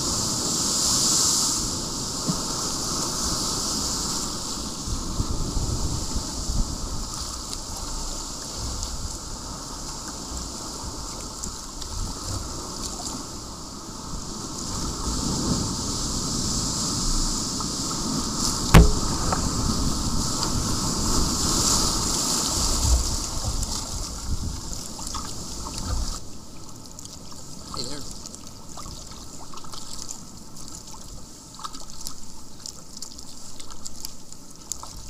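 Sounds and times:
sharp knock: 0:18.8 - 0:19.7.

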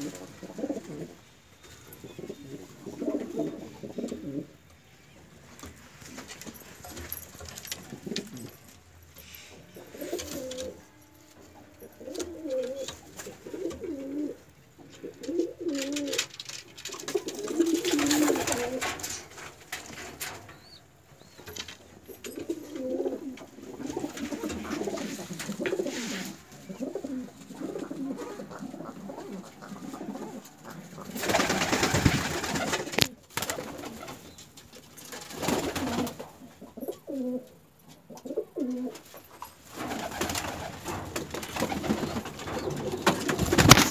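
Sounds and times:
pigeons cooing: 0:00.0 - 0:04.6, 0:09.6 - 0:10.8, 0:11.6 - 0:19.2, 0:20.5 - 0:34.3, 0:35.5 - 0:39.0, 0:39.8 - 0:43.9.

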